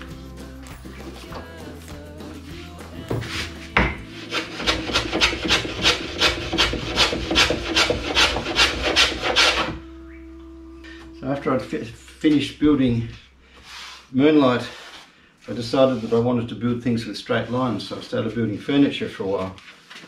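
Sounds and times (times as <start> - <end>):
rasp filing wood: 3.1 - 9.8.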